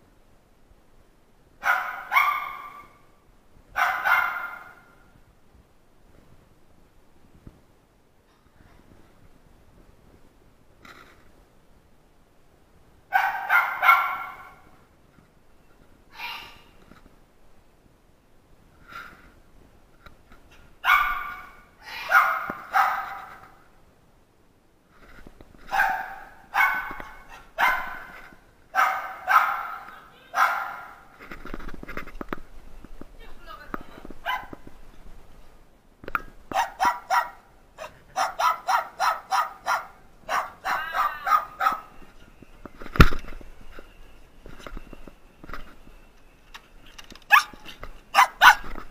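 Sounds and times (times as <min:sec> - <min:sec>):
dog barking: 0:01.6 - 0:03.0, 0:03.8 - 0:05.0, 0:13.1 - 0:14.6, 0:20.8 - 0:23.4, 0:25.7 - 0:28.1, 0:28.8 - 0:31.0, 0:34.2 - 0:34.6, 0:36.5 - 0:41.9, 0:47.3 - 0:47.6, 0:48.2 - 0:48.7
dog whining yelp: 0:47.3 - 0:48.7.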